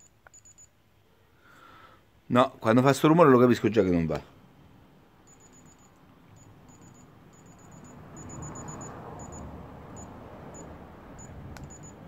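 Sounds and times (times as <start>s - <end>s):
thermometer beeping: 0.0s - 0.8s, 5.2s - 12.0s
low rushing street noise: 2.1s - 12.0s.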